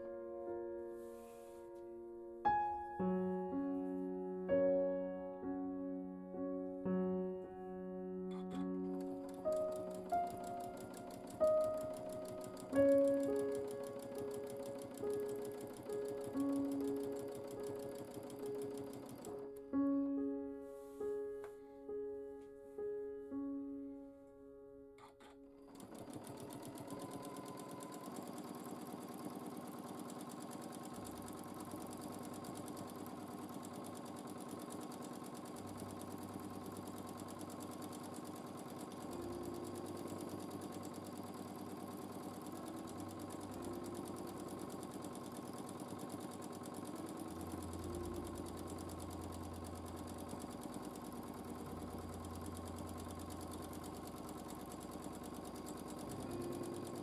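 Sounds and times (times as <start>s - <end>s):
sewing machine stitching: 8.3s - 19.6s, 25.0s - 57.0s.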